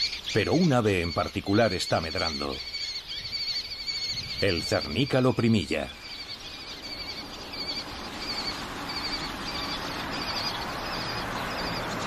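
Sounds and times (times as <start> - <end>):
birds chirping: 0.0 - 12.0
dense bird chatter: 0.0 - 12.0.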